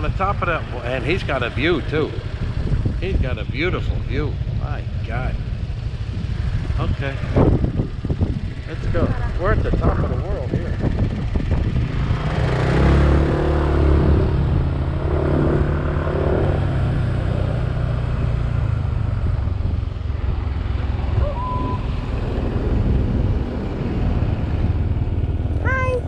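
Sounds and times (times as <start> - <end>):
wind on microphone: 0.0 - 5.0, 6.0 - 25.2
vehicle engine under load: 0.0 - 26.0.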